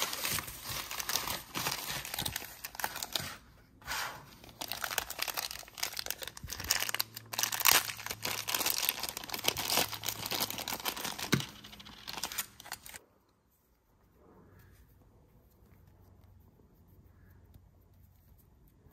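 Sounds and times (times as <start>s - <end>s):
plastic bag crinkling: 0.0s - 3.4s, 4.4s - 13.0s.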